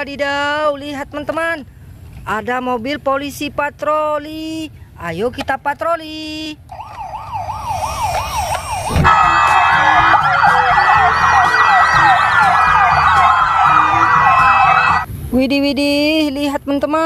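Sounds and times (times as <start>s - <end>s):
toy electronic siren yelping: 6.7s - 15.0s
police sirens wailing: 6.7s - 15.1s.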